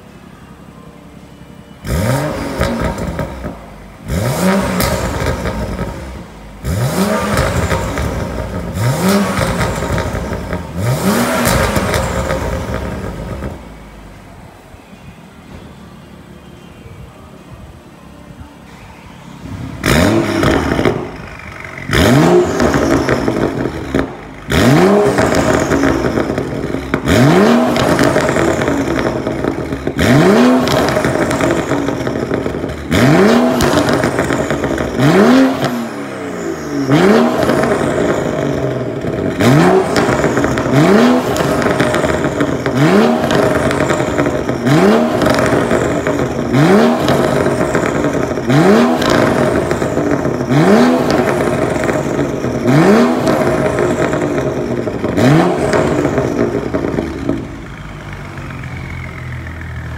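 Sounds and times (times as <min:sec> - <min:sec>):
car engine revving: 0:01.7 - 0:14.3, 0:19.2 - 0:59.9.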